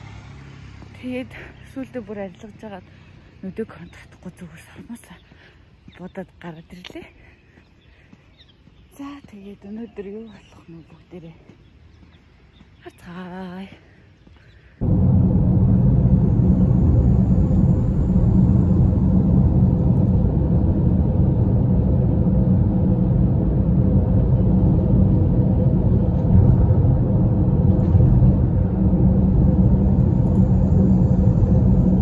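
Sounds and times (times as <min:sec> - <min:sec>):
road and engine rumble in car: 0:00.0 - 0:02.8, 0:14.8 - 0:32.0.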